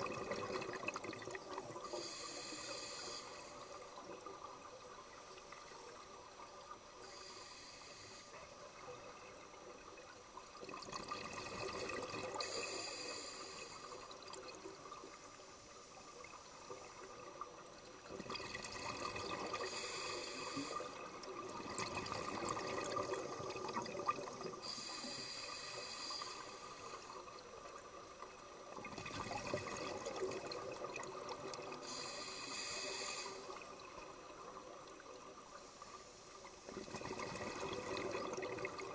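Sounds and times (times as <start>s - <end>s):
regulator hissing inhale: 1.7s - 4.0s, 7.0s - 8.7s, 12.4s - 14.2s, 19.5s - 21.2s, 24.6s - 27.3s, 31.7s - 33.8s
exhaled bubbles rushing: 21.3s - 24.6s, 36.7s - 38.9s.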